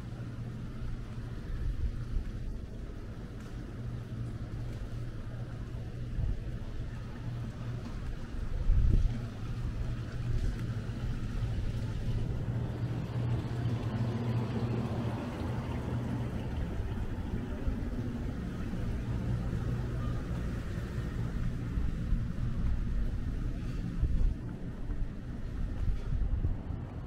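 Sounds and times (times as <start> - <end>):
street traffic engine hum: 0.0 - 27.0
cars passing: 9.2 - 27.0.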